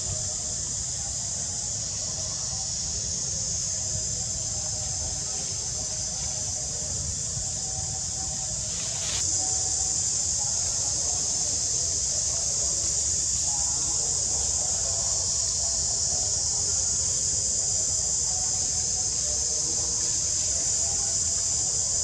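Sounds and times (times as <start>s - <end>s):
insects buzzing: 0.0s - 22.0s.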